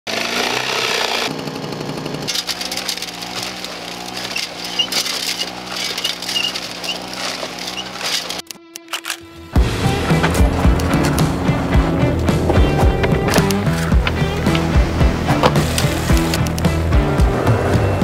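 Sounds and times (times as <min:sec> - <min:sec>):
jigsaw cutting wood: 0:00.0 - 0:08.4
steady low drone: 0:09.4 - 0:18.0.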